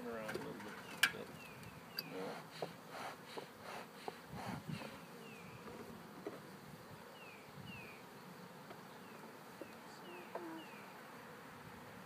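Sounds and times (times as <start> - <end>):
bees buzzing: 1.3 - 12.0
light taps on hive frame: 8.6 - 10.6.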